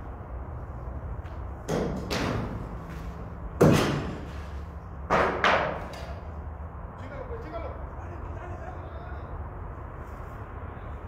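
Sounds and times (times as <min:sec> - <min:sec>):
loud echoing bangs: 0:03.6 - 0:04.3.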